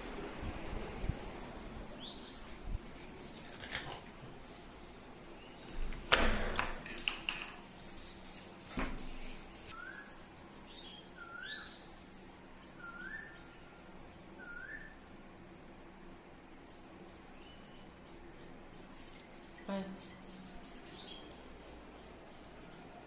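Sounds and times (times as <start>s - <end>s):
bird chirping: 9.7s - 11.9s, 12.7s - 15.0s.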